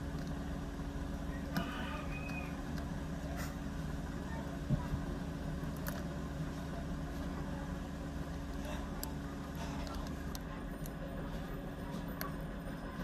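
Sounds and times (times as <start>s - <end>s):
low background rumble and hum: 0.0s - 13.0s.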